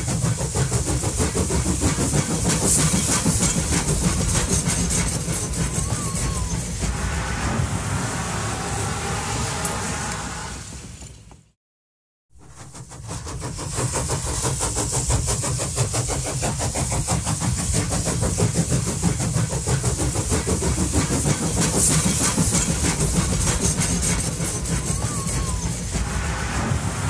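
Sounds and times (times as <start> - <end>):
rapid clicking and hiss: 0.0 - 6.1, 12.4 - 26.0
tram wheels rumbling on rail: 0.0 - 11.6, 12.4 - 27.0.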